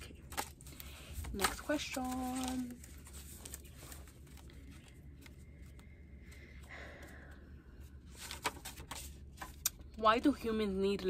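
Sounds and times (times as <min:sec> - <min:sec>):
paper cards rustling: 0:00.0 - 0:06.4, 0:08.0 - 0:10.0
faint room hum: 0:00.0 - 0:11.0.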